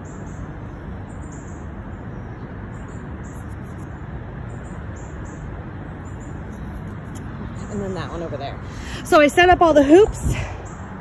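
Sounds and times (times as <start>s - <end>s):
wind buffeting microphone: 7.3s - 11.0s.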